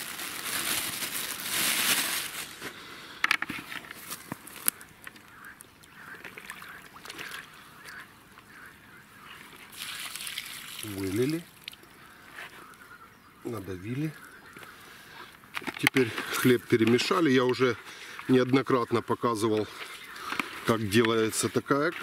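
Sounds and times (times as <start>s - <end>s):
rustling pouring noise: 0.0s - 2.6s, 9.7s - 11.6s
waterfowl honking: 4.8s - 10.6s, 11.9s - 15.3s, 16.6s - 22.0s.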